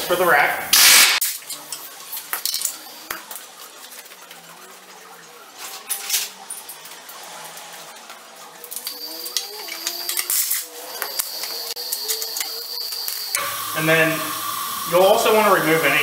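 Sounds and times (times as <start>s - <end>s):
metal tools clinking: 8.7s - 13.4s.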